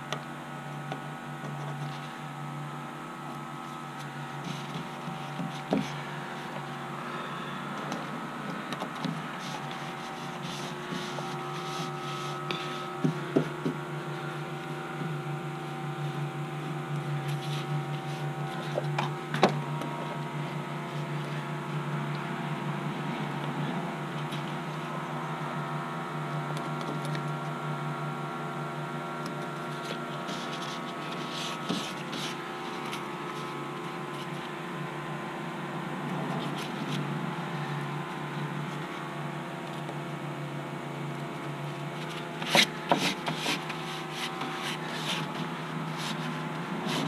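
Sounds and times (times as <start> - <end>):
steady machine hum: 0.0 - 47.0.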